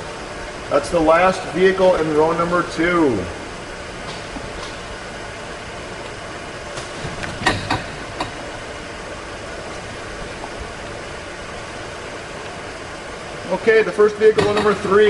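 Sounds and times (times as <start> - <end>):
steady mechanical hum: 0.0 - 15.0
sharp knocks: 6.8 - 8.4.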